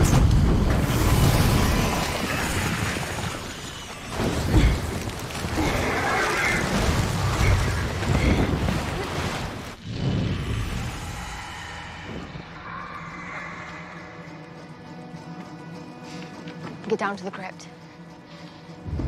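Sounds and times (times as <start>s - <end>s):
rushing flame: 0.0s - 13.8s.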